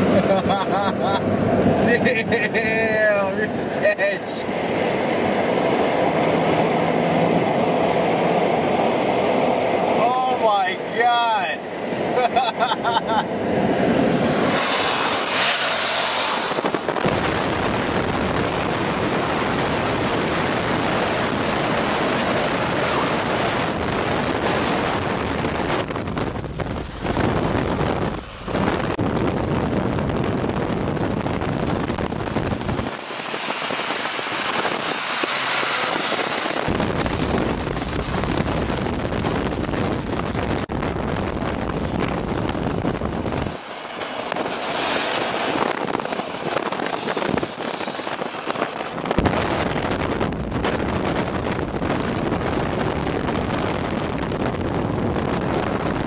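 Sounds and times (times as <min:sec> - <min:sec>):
road noise at highway speed: 0:00.0 - 0:56.0
wind rushing past vehicle: 0:00.0 - 0:56.0
wind buffeting microphone: 0:13.0 - 0:56.0.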